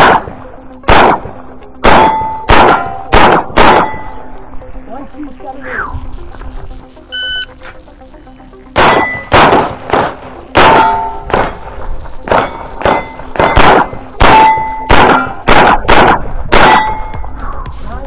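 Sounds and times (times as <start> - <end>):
pistol shots: 0.0 - 4.1, 8.8 - 17.1
steel target plates ringing: 1.8 - 4.2, 8.8 - 9.3, 10.6 - 11.7, 12.3 - 15.5, 16.6 - 17.3.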